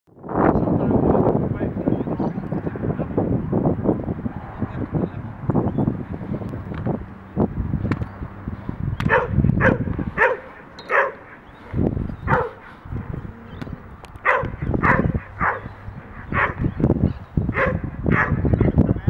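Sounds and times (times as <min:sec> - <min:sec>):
dog barking: 0:09.1 - 0:11.4, 0:12.2 - 0:12.8, 0:14.2 - 0:16.7, 0:17.5 - 0:18.5.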